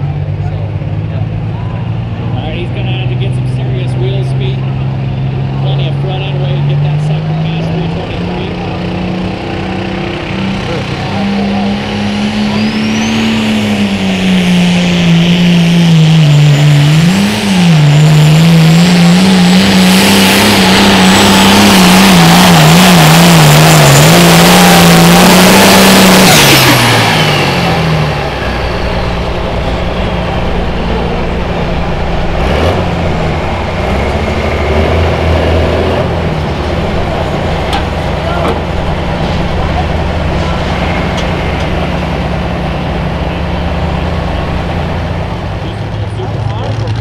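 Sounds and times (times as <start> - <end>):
tractor diesel engine under load: 0.0 - 47.0
turbo whine: 9.8 - 46.7.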